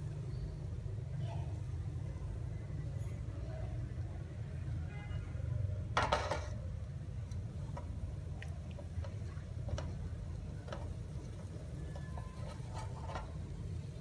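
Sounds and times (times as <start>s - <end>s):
low steady hum: 0.0s - 14.0s
sauce bubbling in a frying pan: 6.9s - 14.0s.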